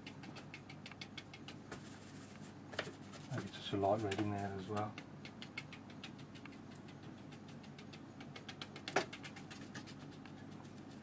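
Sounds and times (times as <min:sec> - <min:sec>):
brush dabbing on paper: 0:01.6 - 0:04.9.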